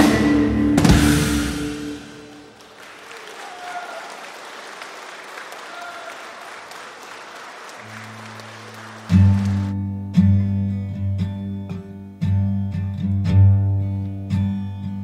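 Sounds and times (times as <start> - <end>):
audience applauding: 2.1 - 9.8.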